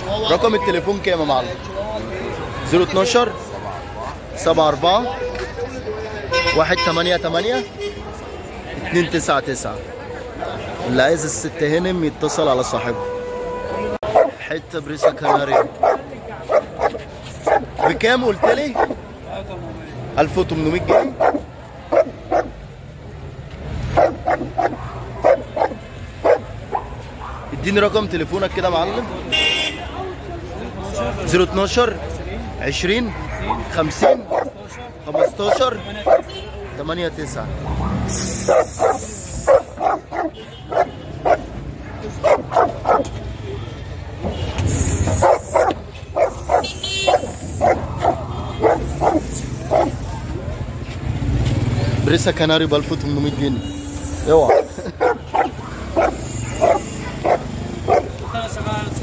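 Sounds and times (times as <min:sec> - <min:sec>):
dog barking: 0:03.6 - 0:04.3, 0:12.2 - 0:13.0, 0:14.0 - 0:19.0, 0:20.8 - 0:22.6, 0:23.9 - 0:27.6, 0:32.9 - 0:37.0, 0:37.6 - 0:43.6, 0:45.1 - 0:50.8, 0:54.4 - 0:58.6.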